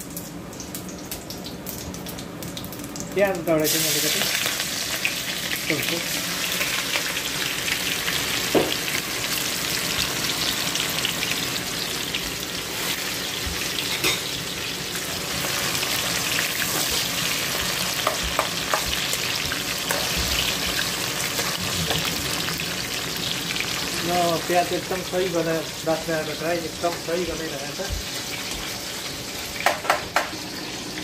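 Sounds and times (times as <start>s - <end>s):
onions sizzling in hot oil: 0.0s - 31.0s.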